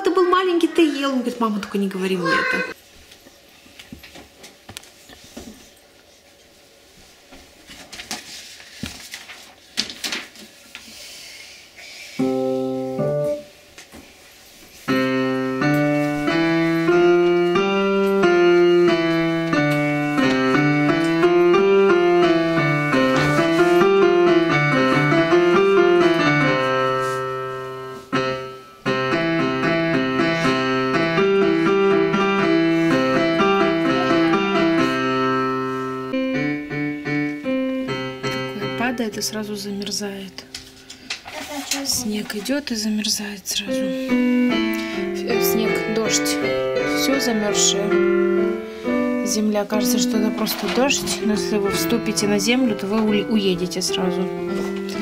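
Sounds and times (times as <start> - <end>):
digital piano playing: 12.2 - 13.6, 14.9 - 40.8, 43.7 - 55.0
faint rustles and knocks: 23.0 - 24.1, 40.4 - 42.8, 50.0 - 51.9.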